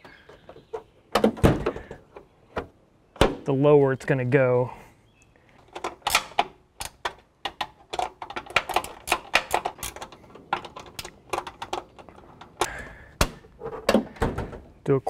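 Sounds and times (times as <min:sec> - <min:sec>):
metallic latch clicks and taps: 0:05.7 - 0:12.7.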